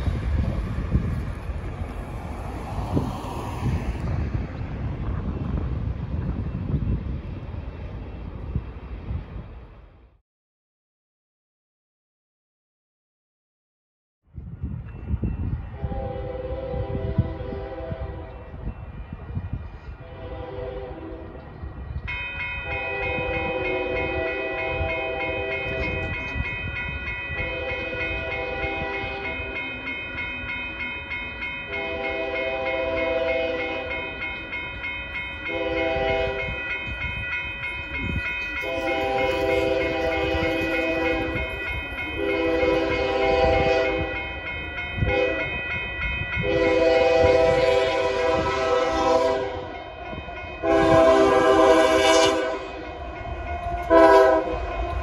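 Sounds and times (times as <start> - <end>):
railroad crossing bell ringing: 14.6 - 55.0
train air horn blasts: 15.7 - 18.5, 20.0 - 21.4, 22.7 - 26.2, 27.4 - 29.6, 31.7 - 34.0, 35.5 - 36.6, 38.6 - 41.6, 42.2 - 44.2, 45.0 - 45.5, 46.4 - 55.0.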